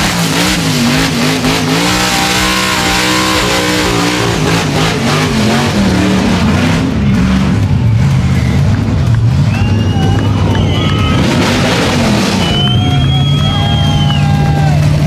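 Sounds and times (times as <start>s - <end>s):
car engine revving hard: 0.0s - 15.0s.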